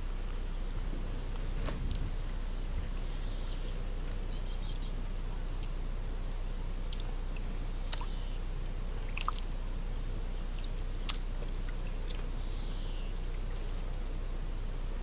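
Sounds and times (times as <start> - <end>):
microphone hum and hiss: 0.0 - 15.0
high chirp: 3.0 - 5.0
faint sharp clicks: 6.9 - 8.1, 9.1 - 9.5, 10.5 - 12.3.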